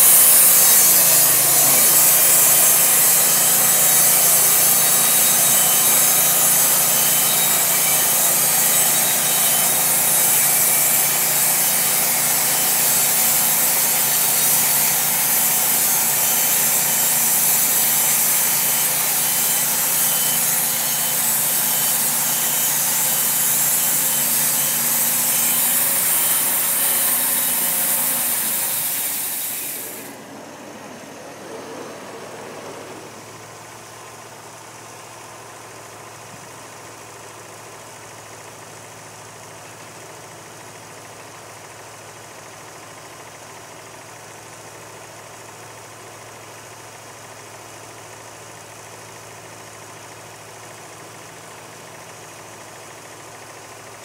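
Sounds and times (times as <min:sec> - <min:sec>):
band saw blade hissing in wood: 0:00.0 - 0:33.9
sawmill engine running: 0:00.0 - 0:45.8.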